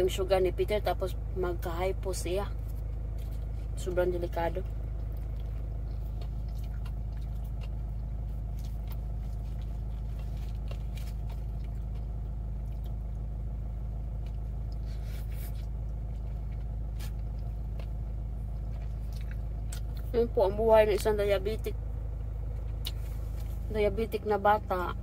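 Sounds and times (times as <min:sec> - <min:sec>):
car engine idling: 0:00.0 - 0:25.0
person chewing food: 0:02.6 - 0:03.8, 0:04.6 - 0:20.1, 0:22.5 - 0:23.6.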